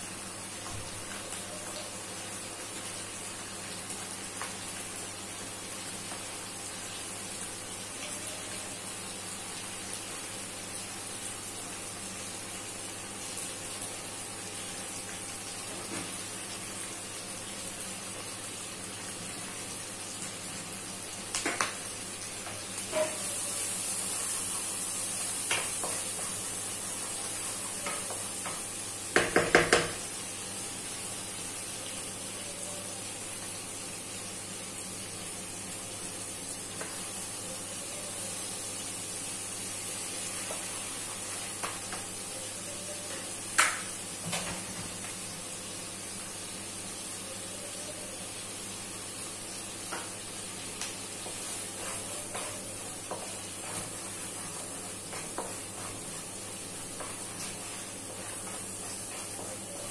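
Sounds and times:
garlic sizzling in sauce: 0.0 - 59.9
spatula knocking against wok: 29.1 - 30.0
wooden spatula scraping wok: 51.3 - 59.6.

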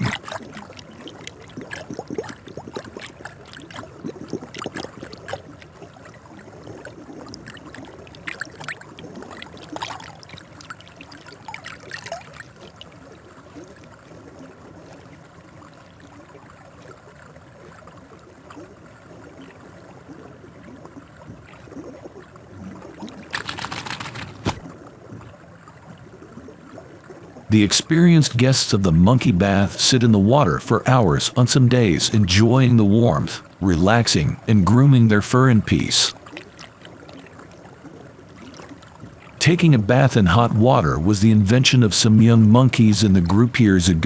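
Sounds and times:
trickle of running water: 0.0 - 39.4
water splashing and lapping: 0.0 - 44.0.

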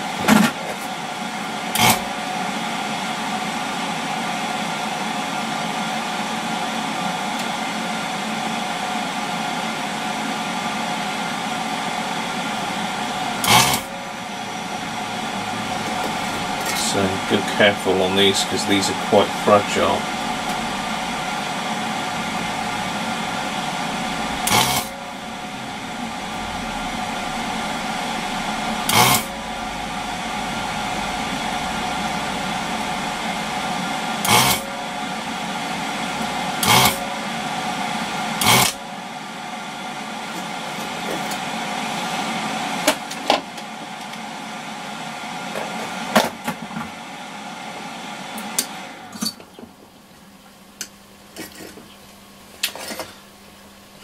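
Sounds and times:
desoldering gun whirring hiss: 0.8 - 40.7.

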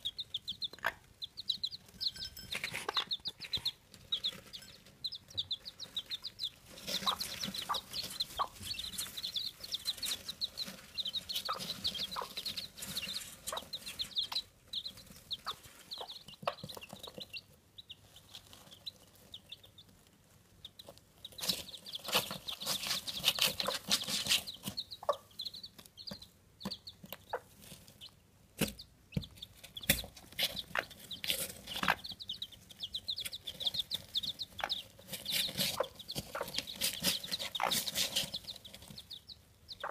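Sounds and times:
chicks peeping: 0.0 - 39.9
rustling and scratching in straw: 5.7 - 17.0, 18.0 - 24.8, 30.2 - 39.1.

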